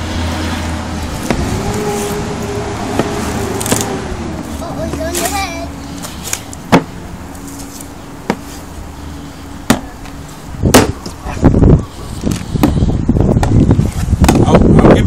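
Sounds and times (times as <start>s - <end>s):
handling noise: 1.1s - 8.8s.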